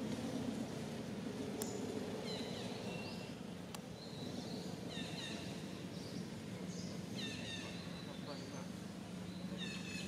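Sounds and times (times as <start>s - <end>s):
birds chirping: 1.6s - 10.0s.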